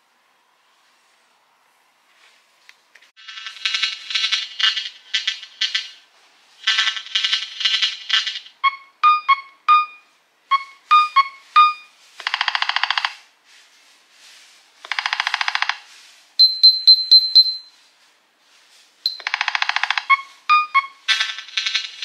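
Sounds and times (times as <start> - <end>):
buzzy pulsing ringtone bursts: 8.6 - 12.0, 19.1 - 21.2
short pitched phone beeps: 8.6 - 12.0, 16.4 - 17.8, 19.1 - 21.1.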